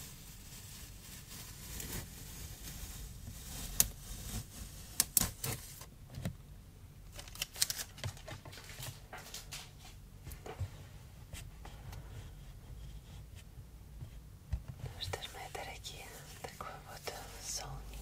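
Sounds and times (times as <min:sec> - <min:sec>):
cardboard rubbing and rustling: 0:00.0 - 0:05.9.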